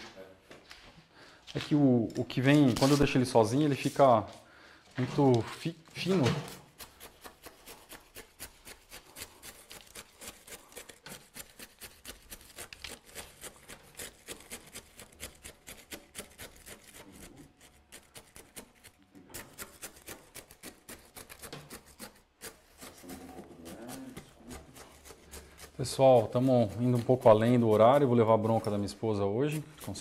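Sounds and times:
gritty soil scraping: 7.7s - 30.0s.

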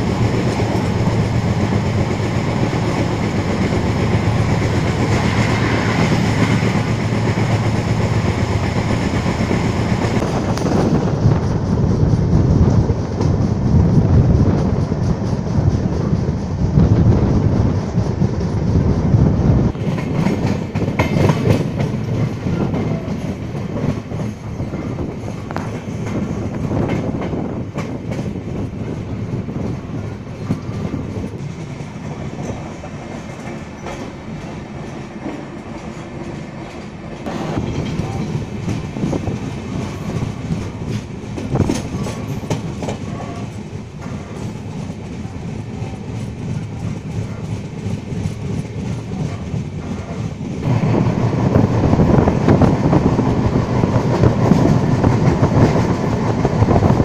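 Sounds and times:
train wheels rumbling on rail: 0.0s - 57.0s
wheels clacking over rail joints: 19.7s - 28.7s, 30.3s - 57.0s.

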